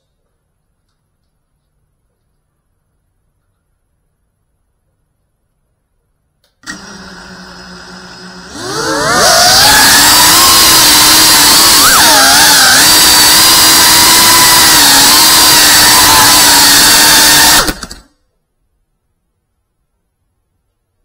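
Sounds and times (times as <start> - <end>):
quadcopter motors whining: 6.7 - 18.1.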